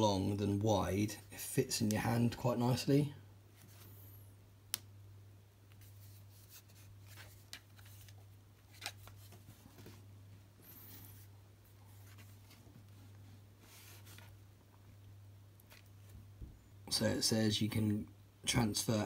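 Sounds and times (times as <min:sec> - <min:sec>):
handling rubs on cardboard: 0:13.3 - 0:14.4.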